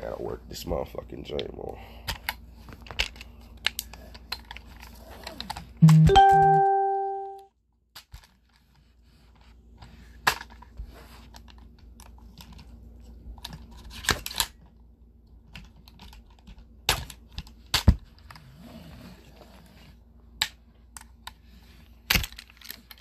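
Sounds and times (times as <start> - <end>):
ringing tone: 5.8 - 7.4.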